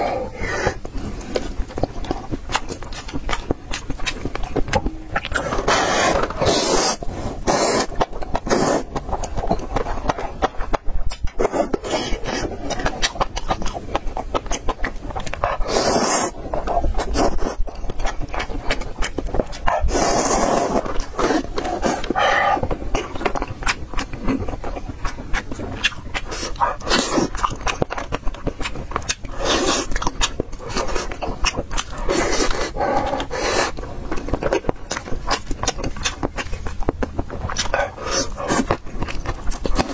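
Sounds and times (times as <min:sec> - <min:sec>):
wet chewing and lip-smacking: 0:00.0 - 0:39.9
slurping noodles: 0:05.2 - 0:09.0, 0:15.6 - 0:17.6, 0:19.7 - 0:23.3, 0:26.2 - 0:27.5, 0:29.3 - 0:33.9, 0:37.8 - 0:38.8.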